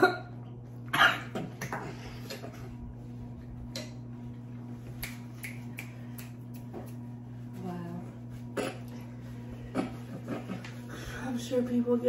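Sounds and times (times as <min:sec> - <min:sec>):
steady low hum: 0:00.0 - 0:12.0
faint mouth clicks: 0:05.0 - 0:07.0.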